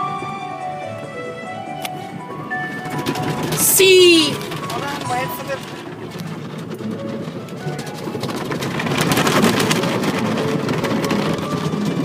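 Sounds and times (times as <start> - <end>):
music in a car: 0.0 - 5.7.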